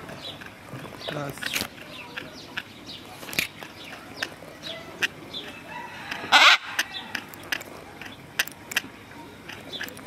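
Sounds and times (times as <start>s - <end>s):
macaw harsh squawk: 5.8s - 7.2s.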